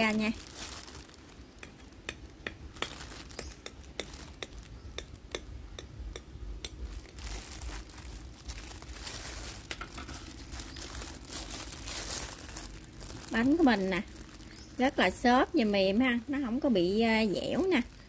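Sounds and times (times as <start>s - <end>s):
plastic glove crinkling: 0.0s - 5.3s, 6.6s - 18.0s.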